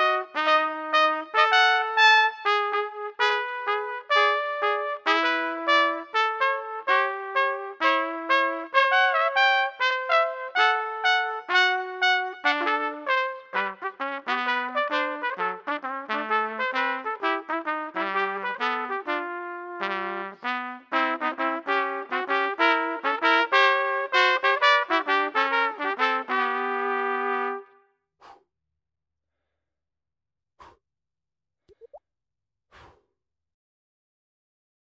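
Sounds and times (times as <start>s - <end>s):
two trumpets playing swing jazz: 0.0s - 27.6s.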